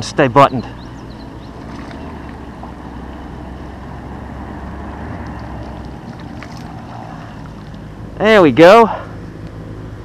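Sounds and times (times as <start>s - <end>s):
fish splashing at surface: 1.6s - 2.4s, 5.2s - 7.8s.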